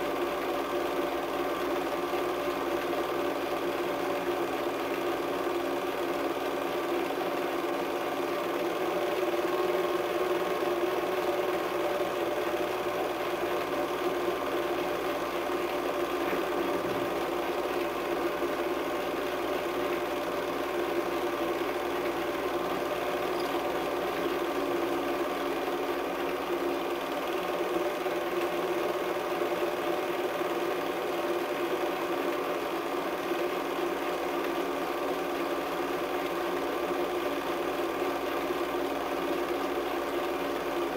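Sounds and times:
film projector humming: 0:00.0 - 0:40.9.

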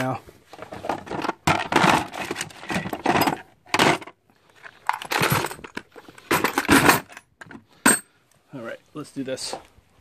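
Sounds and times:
metal tools clinking in toolbox: 0:00.6 - 0:04.2, 0:04.8 - 0:08.1.

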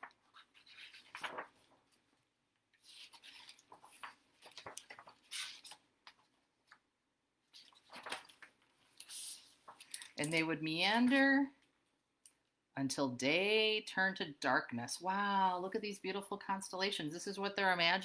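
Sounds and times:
book pages rustling: 0:00.0 - 0:11.3.

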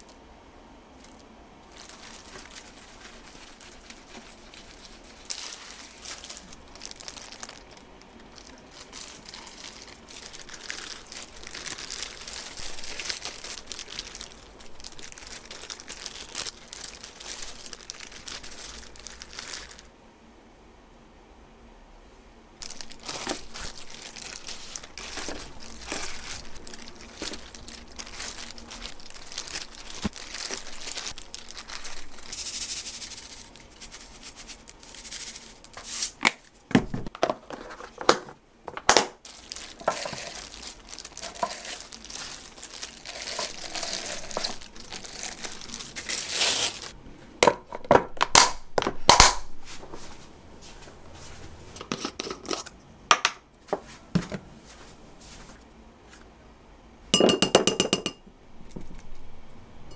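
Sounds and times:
plastic wrap crinkling: 0:00.9 - 0:19.9, 0:22.6 - 0:47.0.

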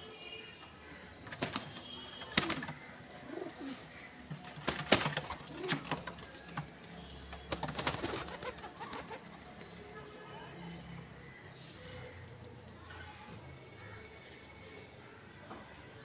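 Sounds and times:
doves cooing: 0:01.1 - 0:09.8
wings flapping: 0:01.2 - 0:02.8, 0:04.3 - 0:09.6.

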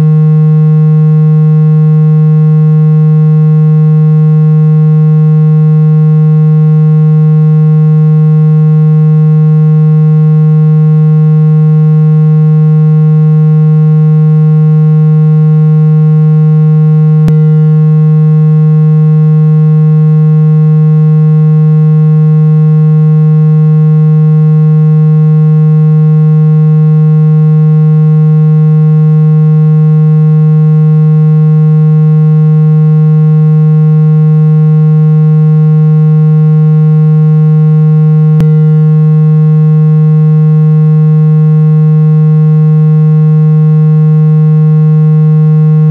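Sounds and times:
low-pitched electronic tone: 0:00.0 - 0:45.9
brief click: 0:17.2 - 0:17.5, 0:38.4 - 0:38.6.

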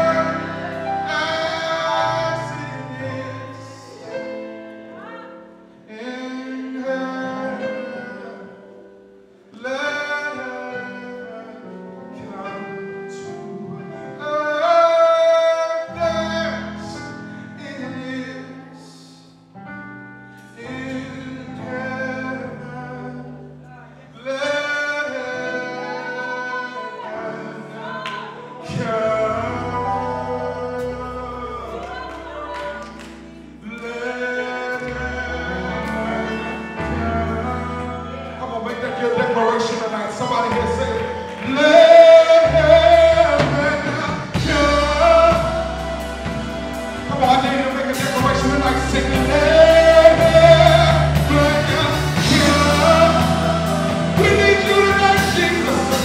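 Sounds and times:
man singing gospel: 0:00.0 - 0:05.2, 0:05.8 - 0:19.4, 0:20.5 - 0:56.0
backing singers: 0:00.0 - 0:05.6, 0:23.7 - 0:56.0
held instrumental chords: 0:00.0 - 0:09.6, 0:16.0 - 0:56.0.

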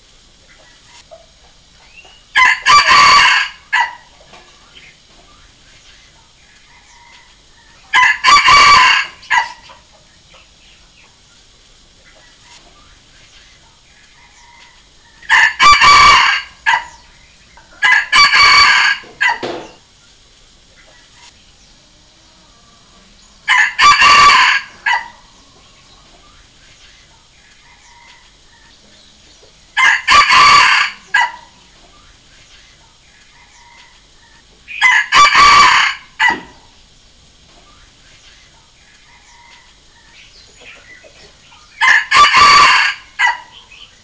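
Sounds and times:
rooster crowing: 0:02.3 - 0:04.1, 0:06.7 - 0:09.8, 0:14.2 - 0:19.8, 0:21.9 - 0:26.0, 0:27.6 - 0:28.5, 0:29.8 - 0:31.7, 0:33.3 - 0:34.1, 0:34.7 - 0:36.7, 0:39.0 - 0:40.2, 0:41.7 - 0:43.8.

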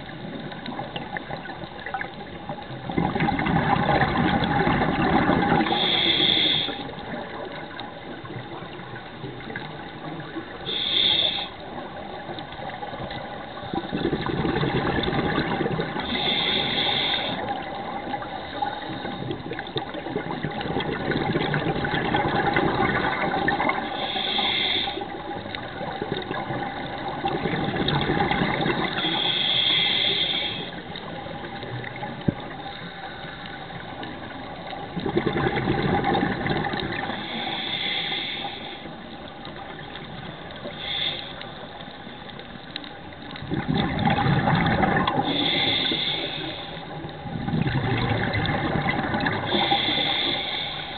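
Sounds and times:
scuba regulator hissing inhales: 0:05.6 - 0:07.0, 0:10.7 - 0:11.8, 0:16.0 - 0:19.4, 0:23.7 - 0:25.8, 0:28.8 - 0:31.0, 0:37.0 - 0:39.2, 0:40.5 - 0:41.9, 0:45.0 - 0:47.1, 0:49.4 - 0:50.9
bubbling exhale: 0:13.7 - 0:33.3, 0:43.4 - 0:50.9.

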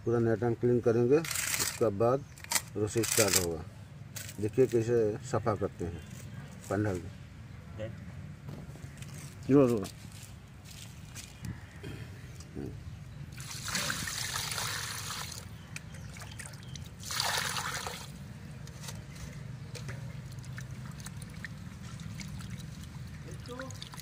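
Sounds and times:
hands sloshing in water: 0:19.7 - 0:24.0.

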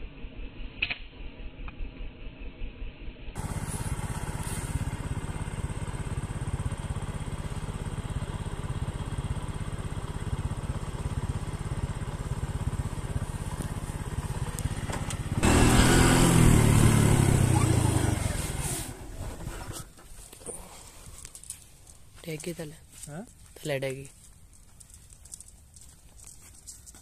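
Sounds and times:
motorcycle engine running: 0:01.5 - 0:22.6.

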